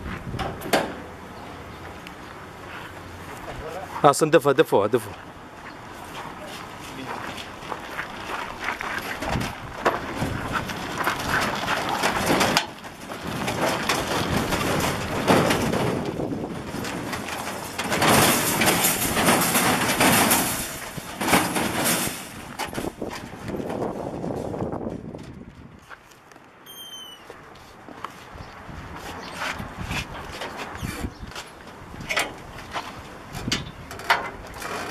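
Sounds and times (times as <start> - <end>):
trailer wheels rumbling on gravel: 0.0 - 26.1, 28.5 - 34.9
sharp clicks and knocks: 9.1 - 23.8, 31.3 - 34.9
metal cage rattling: 11.2 - 23.1.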